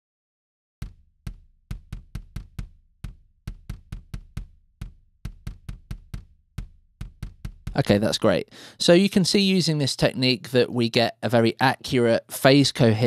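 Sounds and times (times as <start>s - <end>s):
kick drum thuds: 0.8s - 8.0s.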